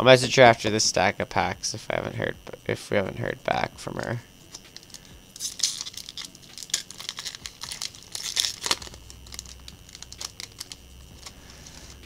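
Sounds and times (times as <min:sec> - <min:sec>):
foil wrapper crinkling and tearing: 0:04.5 - 0:12.0.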